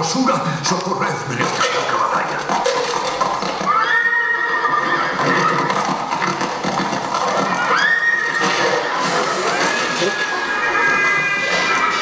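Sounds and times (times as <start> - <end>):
horse whinnying over loudspeakers: 3.6 - 12.0.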